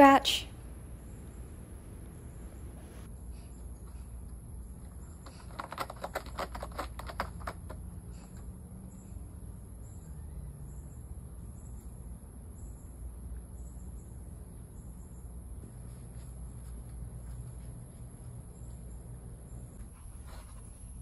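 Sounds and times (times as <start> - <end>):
cat claws scratching cardboard: 5.2 - 7.9.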